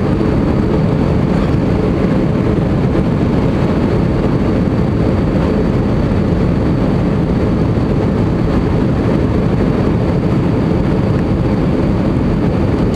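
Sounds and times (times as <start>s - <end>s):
jet cabin engine rumble: 0.0s - 12.9s.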